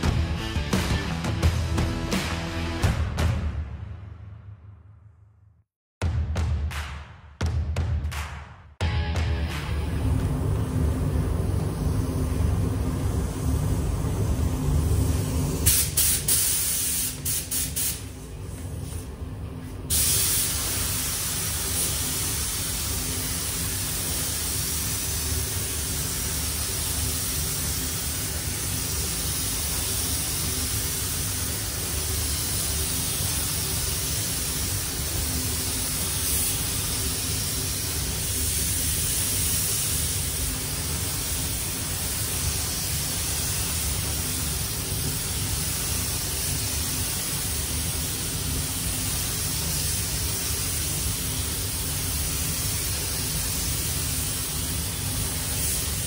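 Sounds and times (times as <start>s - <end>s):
spray booth air flow: 9.7s - 56.0s
spray gun hissing: 15.0s - 18.2s, 19.9s - 56.0s.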